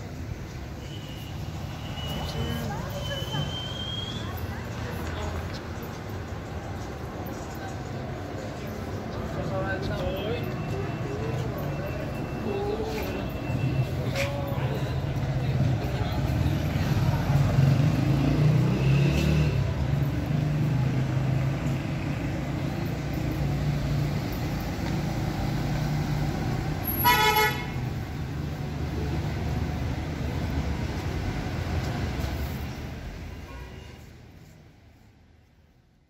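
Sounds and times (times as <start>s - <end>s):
traffic rumble: 0.0s - 36.0s
vehicle horn toot: 26.8s - 27.8s.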